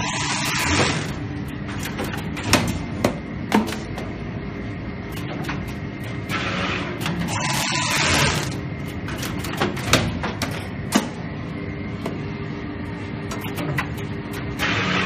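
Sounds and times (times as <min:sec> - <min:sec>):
wire binding machine whirring: 0:00.0 - 0:11.2, 0:13.3 - 0:15.0
sharp mechanical clicks: 0:07.0 - 0:11.1.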